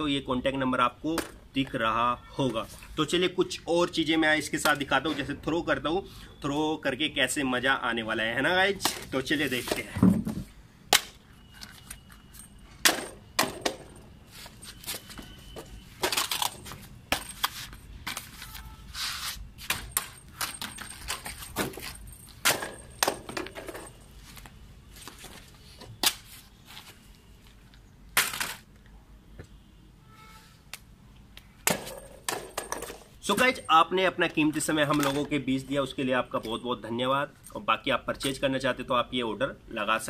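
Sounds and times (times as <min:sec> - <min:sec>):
plastic toy clattering on concrete: 0:16.0 - 0:17.6, 0:19.7 - 0:24.0, 0:28.2 - 0:28.8, 0:31.7 - 0:33.2, 0:34.9 - 0:35.4.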